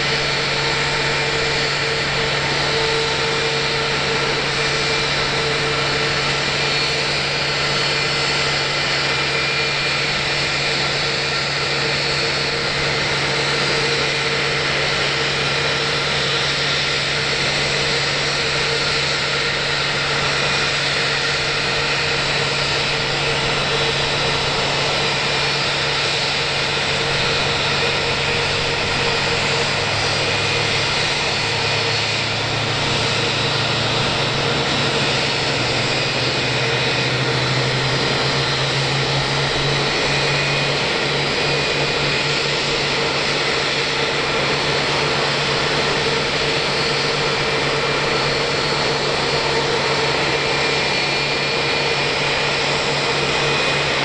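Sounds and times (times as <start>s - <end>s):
jet turbine whine: 0.0s - 54.0s
low hum climbing in pitch: 26.6s - 42.0s.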